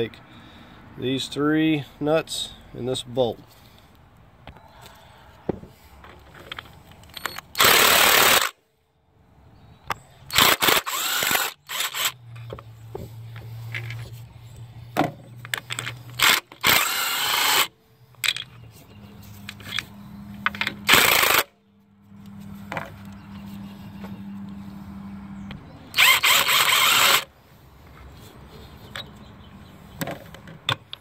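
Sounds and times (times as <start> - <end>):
impact wrench bursts: 7.1 - 8.6, 10.3 - 12.2, 15.6 - 18.4, 20.6 - 21.5, 25.9 - 27.3.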